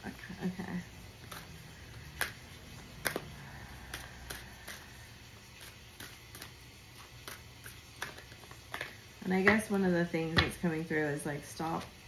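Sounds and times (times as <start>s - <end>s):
cards being shuffled: 1.1s - 9.1s.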